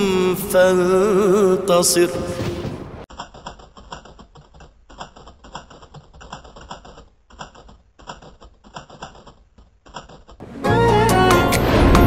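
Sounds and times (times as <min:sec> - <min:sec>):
rapid keyboard key clicks: 0:03.1 - 0:10.4.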